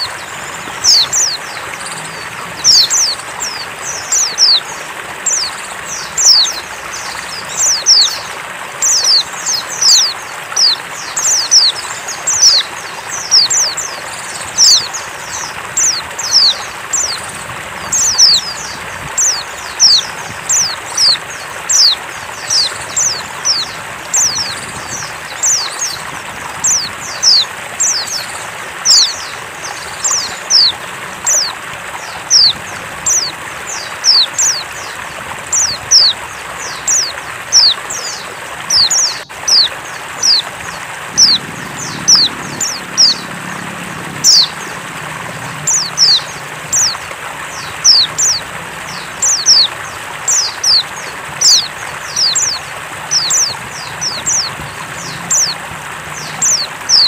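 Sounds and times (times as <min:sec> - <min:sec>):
bird high downward chirps: 0:00.0 - 0:35.0, 0:35.6 - 0:57.0.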